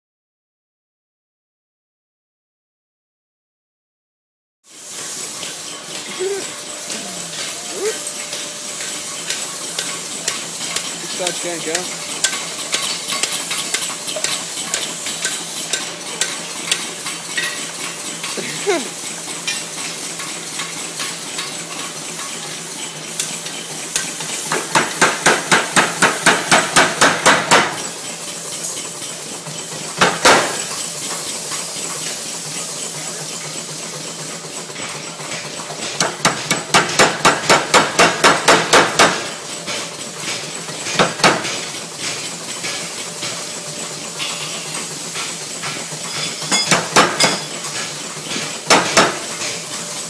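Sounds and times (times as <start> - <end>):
power hammer striking hot steel: 6.9 - 18.6, 22.2 - 28.6, 29.8 - 32.2, 34.8 - 43.5, 44.1 - 49.8.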